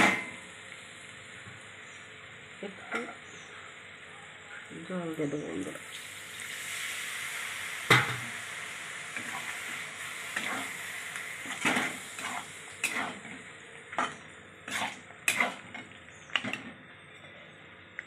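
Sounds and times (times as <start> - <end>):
soft sizzle: 0.0 - 18.0
spatula scraping a pan: 9.2 - 10.8, 11.4 - 13.4, 14.0 - 16.6.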